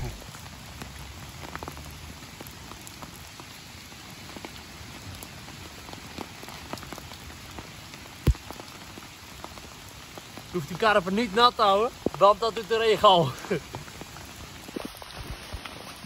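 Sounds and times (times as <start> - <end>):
steady rain falling: 0.0 - 16.0
loud dull thump: 8.2 - 8.4.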